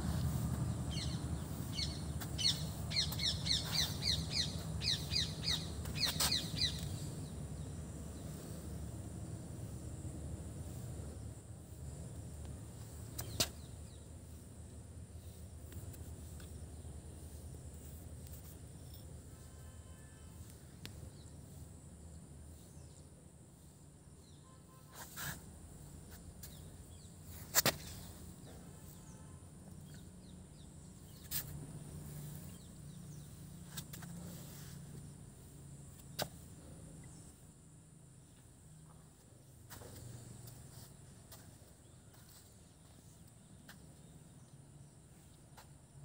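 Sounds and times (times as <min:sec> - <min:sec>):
steady low hum: 0:00.0 - 0:23.9.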